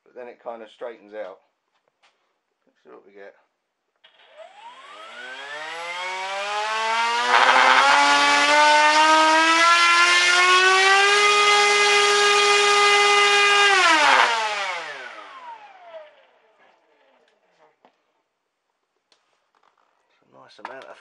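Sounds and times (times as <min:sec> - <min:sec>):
electric motor propeller whine: 0:04.1 - 0:16.2.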